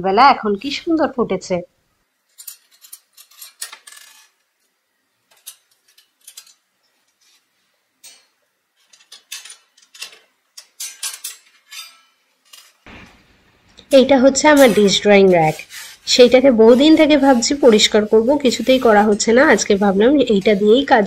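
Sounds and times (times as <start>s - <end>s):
metal dish rack clinking: 8.9s - 12.8s.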